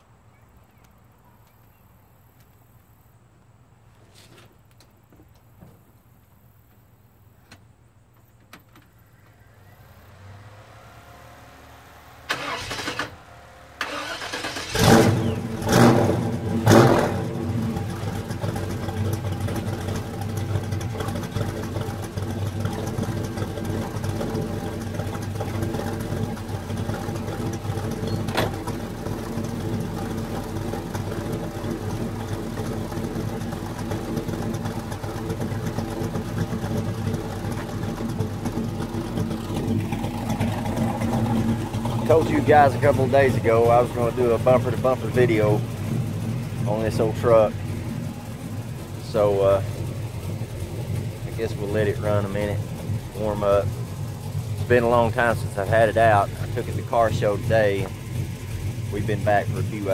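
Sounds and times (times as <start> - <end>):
engine idling: 8.2 - 59.9
engine revving: 9.4 - 59.9
engine starter cranking: 12.2 - 16.9, 17.9 - 43.4.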